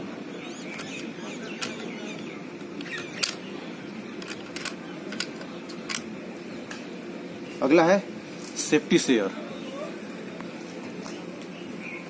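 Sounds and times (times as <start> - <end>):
rifle action clicks: 1.6 - 3.4, 4.2 - 6.1.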